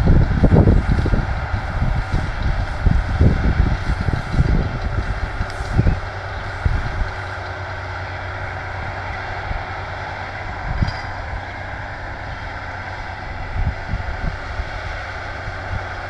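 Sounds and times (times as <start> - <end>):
wind thumps on microphone: 0.0 - 7.2
tractor and baler running: 0.0 - 16.0.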